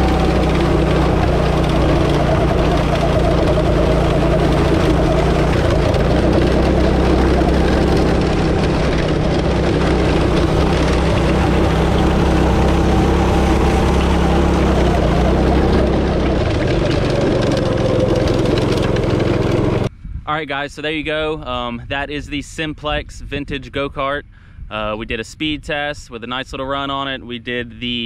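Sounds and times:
go-kart engine running: 0.0 - 19.9.

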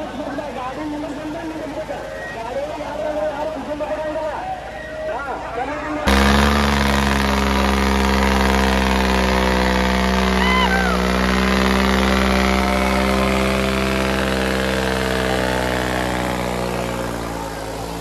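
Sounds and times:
tractor engines droning at high revs: 0.0 - 18.0.

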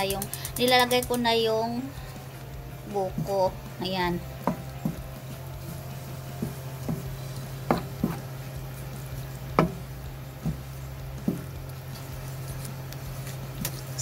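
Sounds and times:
steady low hum: 0.0 - 14.0
stirring food in a pan: 2.1 - 14.0
spatula knocking against pan: 6.3 - 8.3, 9.5 - 11.5.

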